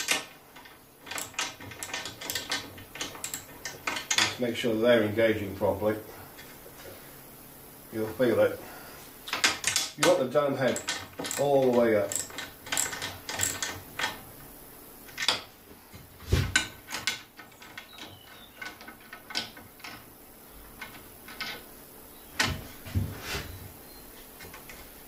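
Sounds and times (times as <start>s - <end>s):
spanner clicking and knocking: 0.0s - 4.4s, 9.3s - 14.4s, 16.5s - 21.7s.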